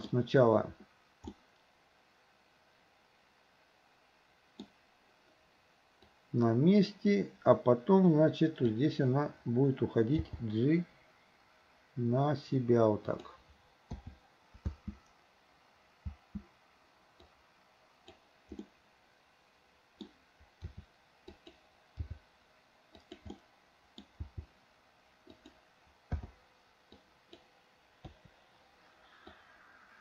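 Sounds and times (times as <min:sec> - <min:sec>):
mouse clicks: 0:01.2 - 0:01.4, 0:04.6 - 0:04.8, 0:18.0 - 0:18.7, 0:20.0 - 0:22.2, 0:22.9 - 0:23.4, 0:25.2 - 0:28.3, 0:29.1 - 0:29.5
keyboard key presses: 0:23.0 - 0:23.4.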